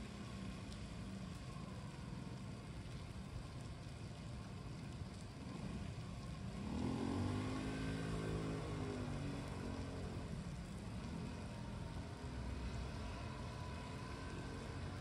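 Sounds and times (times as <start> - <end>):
vehicle passing by: 6.6 - 15.0.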